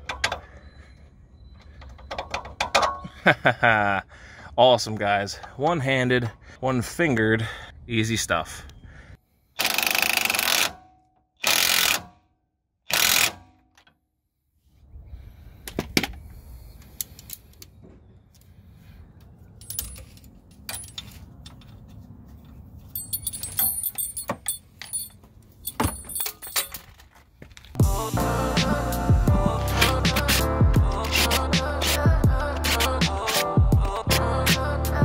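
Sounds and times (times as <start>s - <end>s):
impact wrench bursts: 9.6s - 10.8s, 11.4s - 12.1s, 12.9s - 13.4s.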